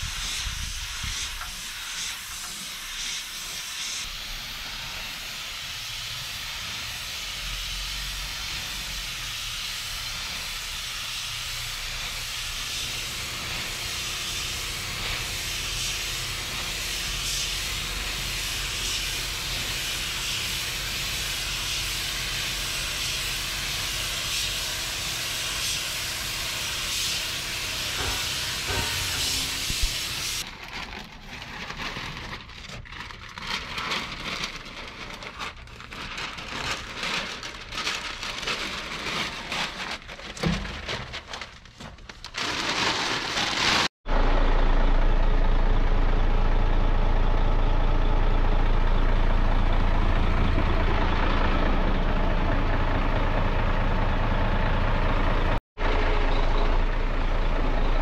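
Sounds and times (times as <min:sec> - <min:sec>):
paint spray gun hissing: 0:00.0 - 0:30.4
truck engine idling: 0:13.1 - 0:40.7, 0:44.1 - 0:58.0.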